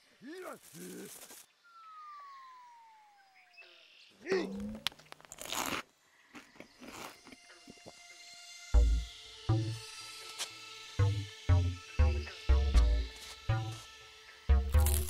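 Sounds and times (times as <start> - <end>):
falling whistle: 1.6 - 3.4.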